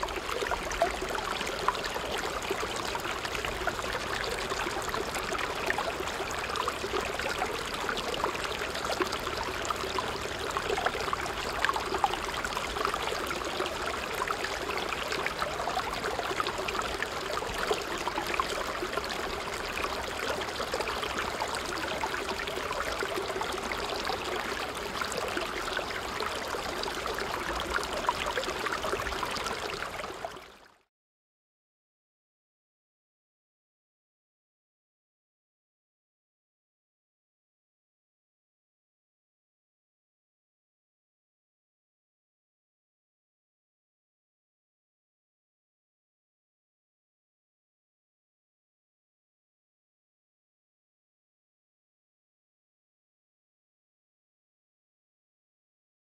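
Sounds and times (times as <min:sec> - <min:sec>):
rushing trickling noise with crackles: 0:00.0 - 0:30.8.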